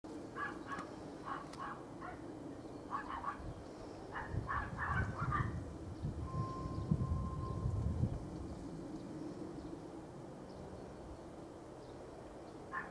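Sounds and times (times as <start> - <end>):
dog barking: 0.4 - 2.2, 2.9 - 3.4, 4.1 - 5.6.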